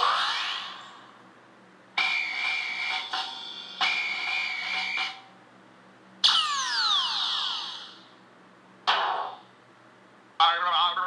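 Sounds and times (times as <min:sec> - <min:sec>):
steady high tone: 0:02.0 - 0:05.2, 0:06.2 - 0:08.1
whistling tones gliding downward: 0:03.8 - 0:05.2, 0:06.2 - 0:07.9.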